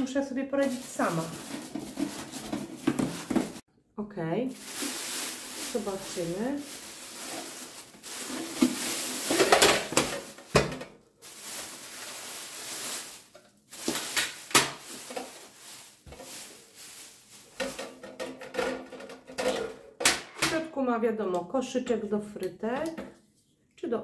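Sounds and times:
plastic bag crinkling: 0:00.6 - 0:03.6, 0:04.5 - 0:18.0.

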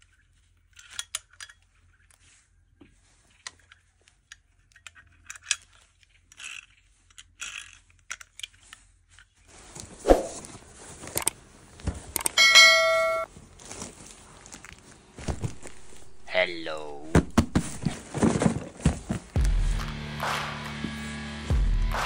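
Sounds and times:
plastic toys and packaging rustling: 0:00.0 - 0:12.4, 0:13.3 - 0:19.5
short ringing tone: 0:12.4 - 0:13.3.

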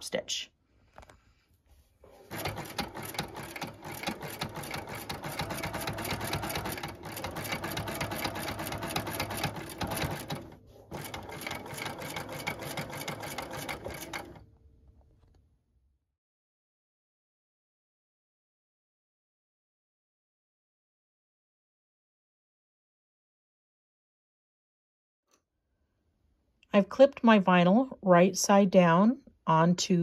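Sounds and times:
sewing machine stitching: 0:02.0 - 0:14.4.

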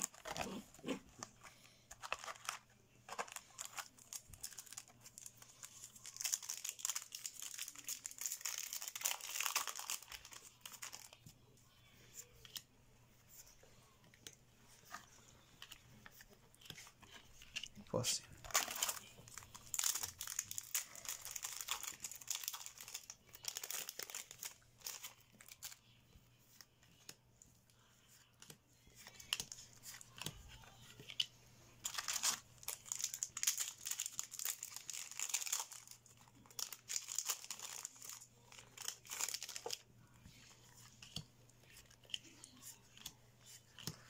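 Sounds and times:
foil wrappers crinkling: 0:00.0 - 0:11.2, 0:16.5 - 0:25.8, 0:31.8 - 0:44.0
trading cards rustling: 0:00.0 - 0:27.2, 0:28.1 - 0:44.0.

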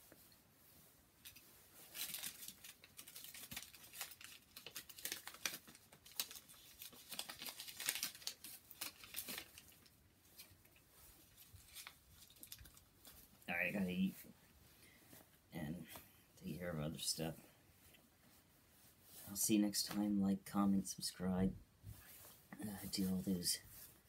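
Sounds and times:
candy wrapper crinkling: 0:01.2 - 0:13.4.

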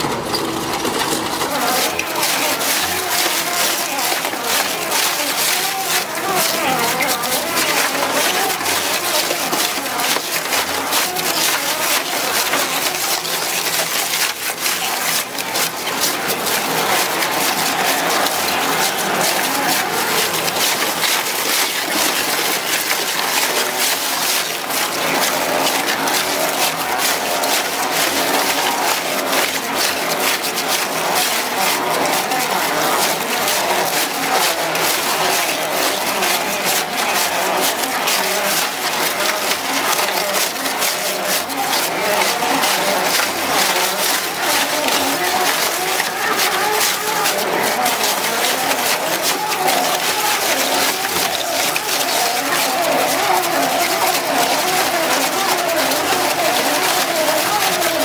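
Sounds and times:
tyre shredder tearing tyres: 0:00.0 - 0:58.0.

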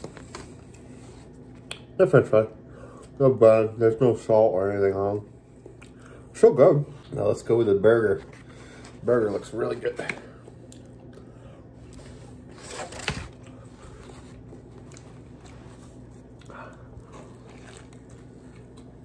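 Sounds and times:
low steady hum: 0:00.0 - 0:19.0
quiet chewing: 0:05.4 - 0:06.3, 0:10.2 - 0:12.4, 0:13.4 - 0:19.0
biting into burger: 0:12.8 - 0:19.0.

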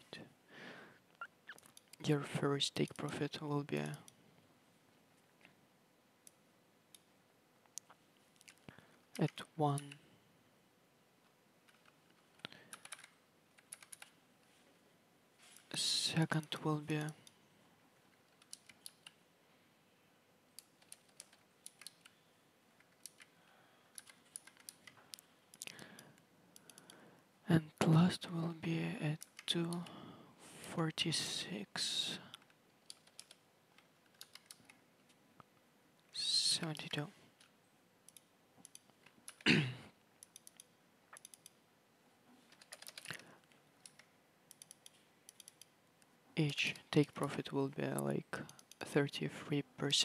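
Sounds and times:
faint keyboard typing: 0:07.7 - 0:10.0, 0:11.2 - 0:14.6, 0:18.1 - 0:19.2, 0:20.5 - 0:22.2, 0:22.8 - 0:27.0, 0:29.2 - 0:30.0, 0:32.2 - 0:35.5, 0:36.1 - 0:39.5, 0:40.2 - 0:41.6, 0:42.4 - 0:49.2
typing on computer keyboard: 0:11.7 - 0:14.2, 0:20.6 - 0:22.2, 0:23.9 - 0:25.7, 0:32.9 - 0:33.4, 0:34.1 - 0:34.8, 0:40.2 - 0:41.5, 0:42.5 - 0:43.2, 0:43.8 - 0:45.7.

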